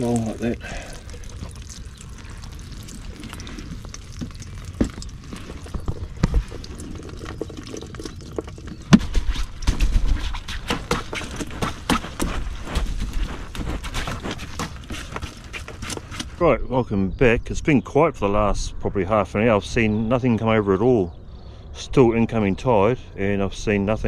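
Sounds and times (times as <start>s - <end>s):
water dripping and trickling: 0.0s - 16.5s.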